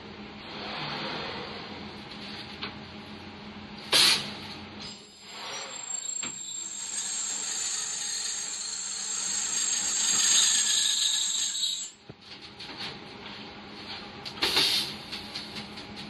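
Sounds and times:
welding machine high-pitched whine: 4.8s - 12.0s.

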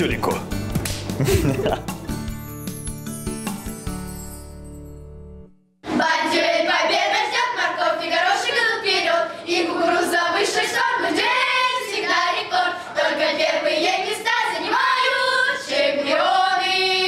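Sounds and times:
children singing together: 5.8s - 17.0s.

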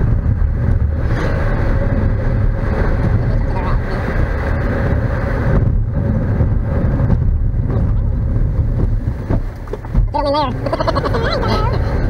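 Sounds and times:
engine and tyre rumble: 0.0s - 12.0s
wind noise: 0.0s - 12.0s.

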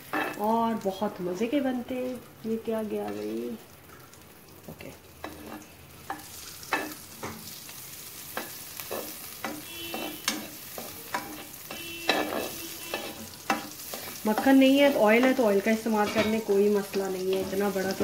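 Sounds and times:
spatula scraping a pan: 0.0s - 0.5s, 5.2s - 7.6s, 8.2s - 16.6s
butter sizzling in a wok: 0.0s - 18.0s.

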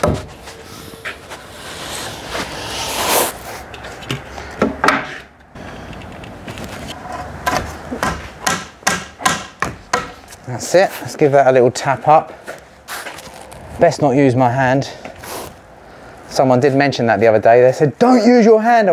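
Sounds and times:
timber knocking and scraping: 0.0s - 10.4s.

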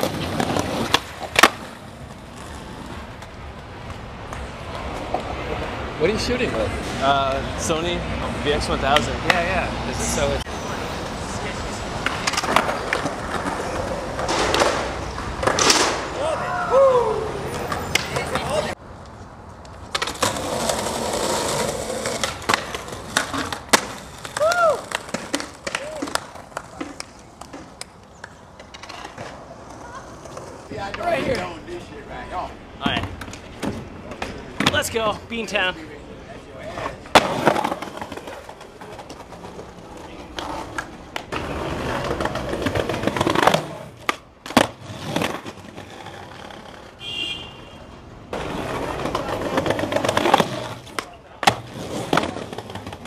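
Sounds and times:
skateboard scraping on stone: 0.0s - 3.3s, 19.9s - 31.7s, 36.6s - 47.2s, 48.3s - 53.0s
skateboard clacking on ground: 0.0s - 5.7s, 8.8s - 9.7s, 12.0s - 16.3s, 17.5s - 31.8s, 32.8s - 35.2s, 36.6s - 47.0s, 48.3s - 53.0s
skateboard clacking on ledge: 21.9s - 31.4s.

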